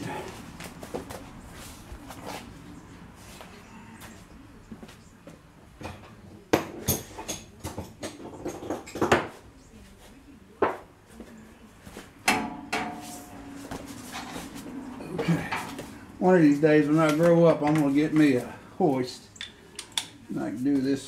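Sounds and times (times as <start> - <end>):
ringing metal clank: 12.3 - 13.5.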